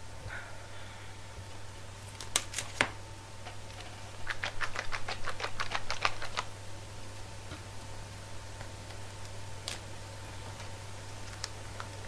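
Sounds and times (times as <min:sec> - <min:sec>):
packaging clicks: 0:02.1 - 0:02.9, 0:10.6 - 0:12.0.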